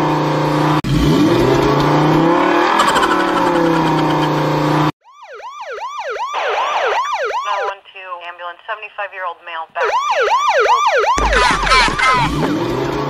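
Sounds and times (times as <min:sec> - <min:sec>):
cartoon police siren wail: 0:02.5 - 0:04.4, 0:05.0 - 0:07.7, 0:09.8 - 0:13.0
choppy warbling chatter: 0:11.2 - 0:12.5.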